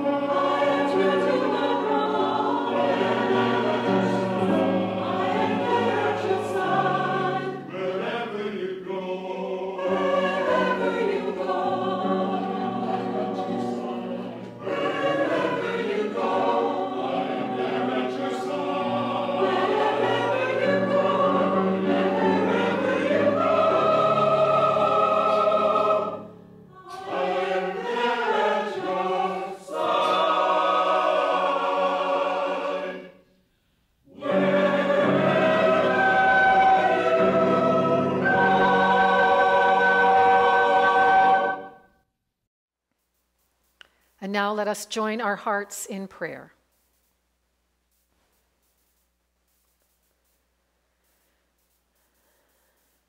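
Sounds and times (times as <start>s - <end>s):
choir singing a hymn: 0.0s - 33.2s, 34.0s - 41.9s.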